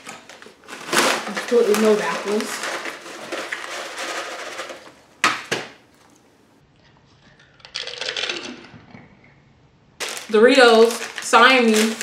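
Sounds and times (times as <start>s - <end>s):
chip bag rustling: 0.0s - 5.1s, 10.0s - 12.0s
chips clattering onto plate: 0.1s - 5.0s.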